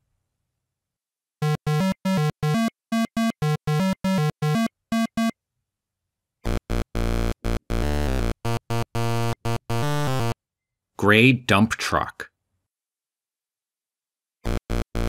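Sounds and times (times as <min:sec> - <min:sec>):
eight-bit synthesizer music: 0:01.4 - 0:05.3, 0:06.5 - 0:10.4, 0:14.5 - 0:15.0.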